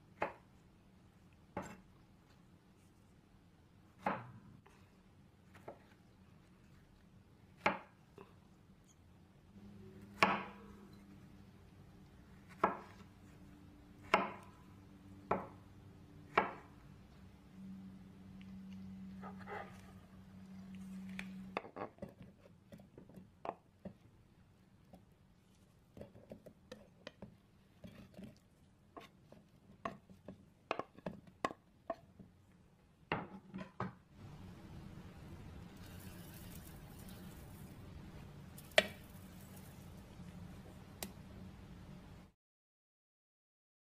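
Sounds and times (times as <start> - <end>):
faint low hum: 0.5 - 22.5, 34.1 - 42.3.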